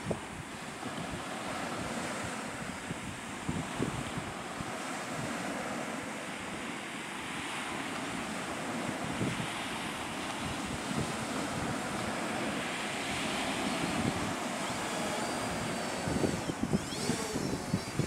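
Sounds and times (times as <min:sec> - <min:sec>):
wind buffeting microphone: 0:00.0 - 0:06.7, 0:07.4 - 0:18.0
faint high whine: 0:00.0 - 0:18.0
waves washing on pebble shore: 0:00.0 - 0:18.0.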